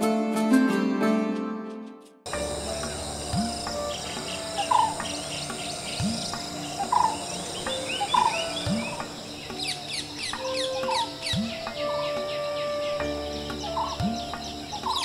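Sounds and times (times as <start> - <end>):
low call rising in pitch: 2.3 - 14.0
birds calling and chirping: 2.3 - 15.0
high insect buzz: 2.3 - 15.0.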